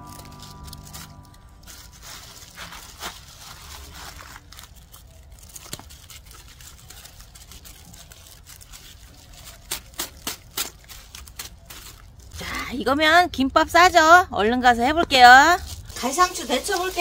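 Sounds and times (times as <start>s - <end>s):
lettuce leaves snapping: 0.0s - 12.3s
leaves rustling: 0.0s - 12.6s, 15.3s - 17.0s.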